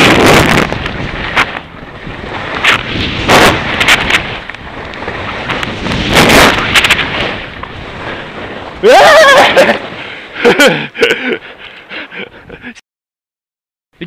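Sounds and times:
wind buffeting microphone: 0.0 - 11.6
skis scraping through snow: 0.0 - 12.2.

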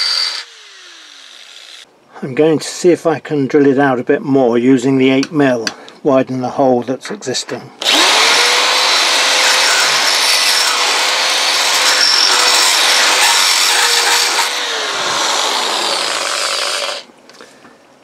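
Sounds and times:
electric drill cutting steel: 0.0 - 1.8, 7.8 - 17.1.

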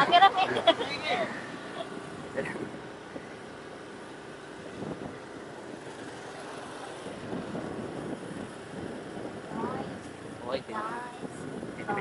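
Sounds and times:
vehicle and road noise: 0.0 - 12.0
wind on microphone: 4.6 - 6.0, 6.6 - 12.0.

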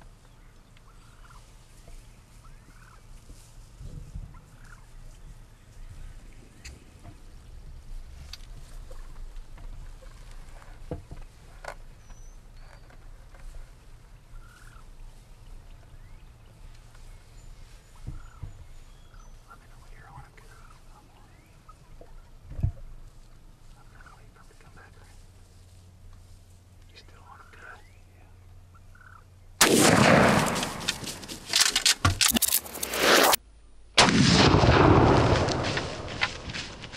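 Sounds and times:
steady low rumble: 0.0 - 12.0, 13.1 - 36.9
faint bird calls: 0.2 - 3.3, 4.2 - 7.5, 11.4 - 29.6
rustling and thumps: 22.0 - 23.4, 30.0 - 33.4
loud shotgun blast: 29.6 - 31.4, 34.0 - 36.8
sharp click: 30.4 - 33.4.

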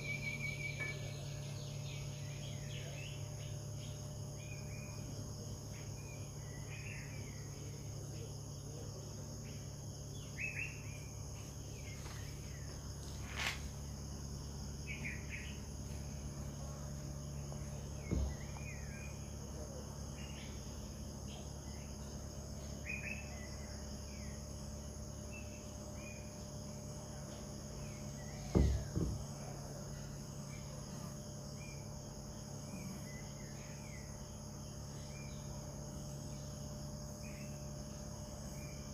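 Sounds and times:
bird chirps: 0.0 - 5.1
insect chorus: 0.0 - 38.9
low steady hum: 0.0 - 38.9
dull thumps: 17.9 - 18.8, 28.5 - 29.4.

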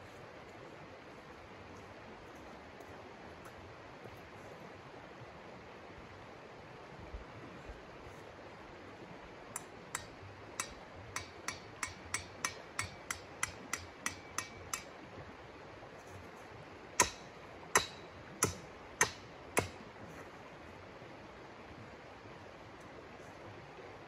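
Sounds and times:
mallet tapping tent stakes: 9.6 - 15.0, 17.0 - 19.8.

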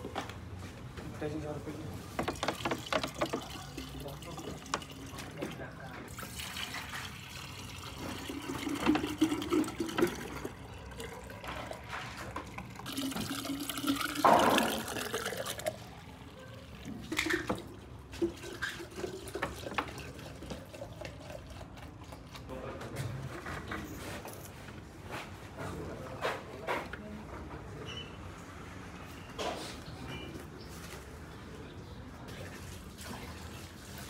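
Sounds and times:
drink pouring into jug: 2.2 - 22.5.

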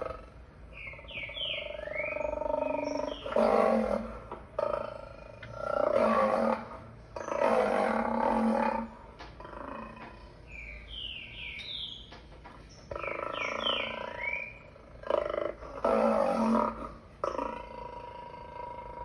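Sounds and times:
small chirping calls: 0.7 - 3.5, 10.0 - 15.0
lion roaring through speakers: 1.5 - 10.2, 12.9 - 19.0.

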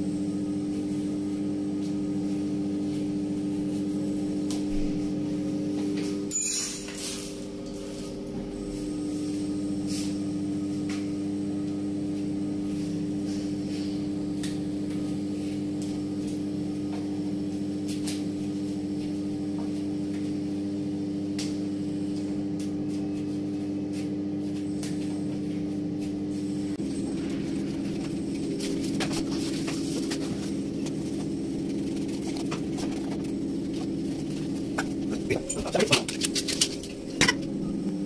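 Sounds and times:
steady hum: 0.0 - 38.0.

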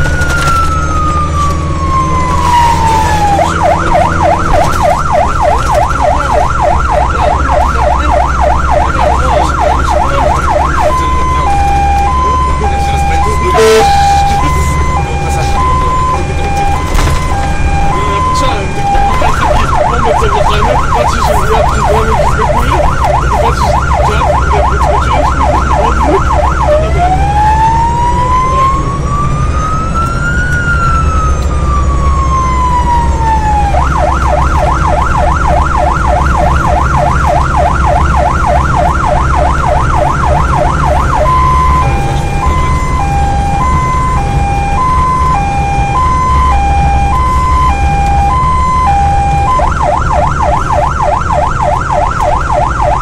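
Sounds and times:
electronic siren cycling tones: 0.0 - 53.0
vehicle engine rumble: 0.0 - 53.0.

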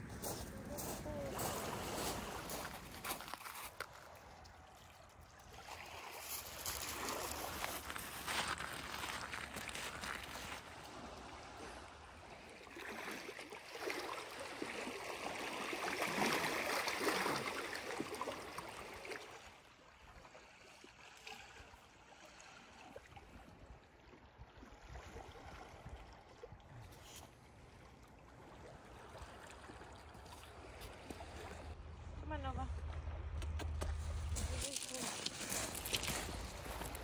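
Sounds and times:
waves lapping on rocky shore: 0.0 - 23.6, 33.6 - 37.0.

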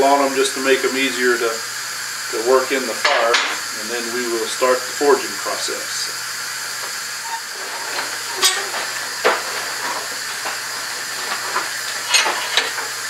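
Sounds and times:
steady background hiss: 0.0 - 13.0
steel bars clanking: 7.2 - 13.0.

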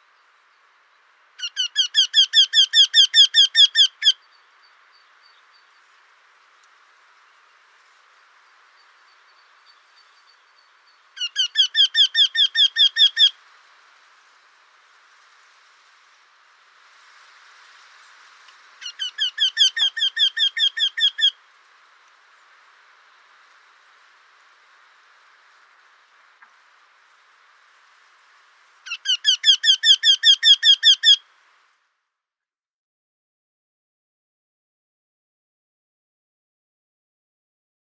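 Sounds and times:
bird repeated call notes: 1.4 - 4.2, 11.2 - 13.4, 18.8 - 21.4, 28.9 - 31.2.

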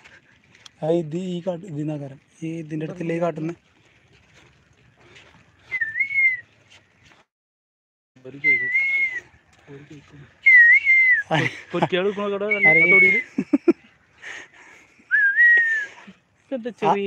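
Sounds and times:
person whistling: 5.7 - 6.4, 8.4 - 9.2, 10.4 - 11.3, 12.5 - 13.2, 15.1 - 15.9
voices: 8.2 - 17.0.

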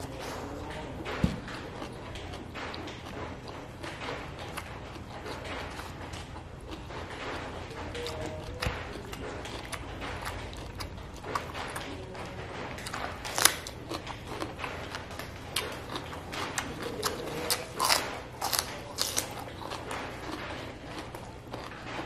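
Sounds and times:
wet chewing: 0.0 - 22.0
crunching bites into cucumber: 16.9 - 20.4.

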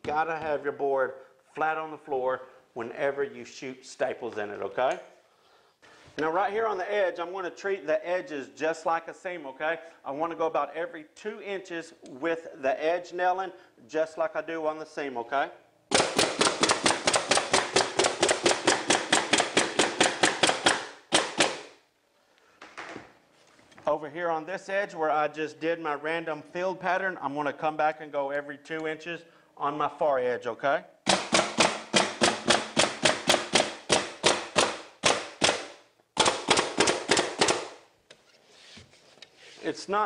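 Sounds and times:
pneumatic stapler firing into plywood: 15.9 - 21.7, 31.1 - 37.8.

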